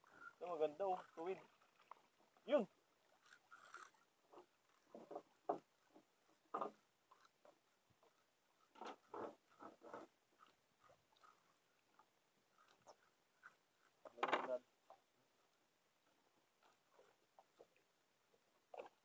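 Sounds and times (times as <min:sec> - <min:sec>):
fishing line scratchy rubs: 0:00.0 - 0:06.0, 0:06.6 - 0:14.6.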